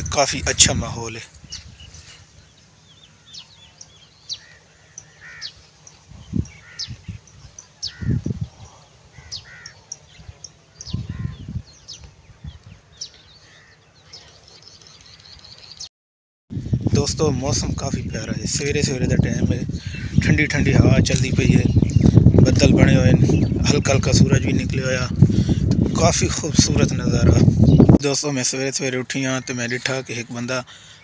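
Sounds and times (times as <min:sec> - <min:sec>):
wind buffeting microphone: 0:00.0 - 0:05.2, 0:05.9 - 0:13.4, 0:16.5 - 0:28.0
birds chirping and calling: 0:00.0 - 0:15.9, 0:16.6 - 0:31.0.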